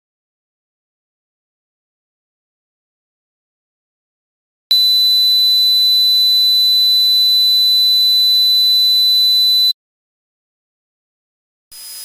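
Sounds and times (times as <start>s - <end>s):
high-pitched ringing tone: 4.7s - 9.8s.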